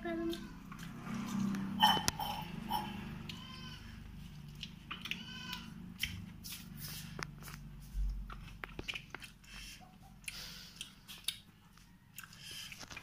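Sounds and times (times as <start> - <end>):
animal cries: 1.7 - 4.0, 4.9 - 5.8.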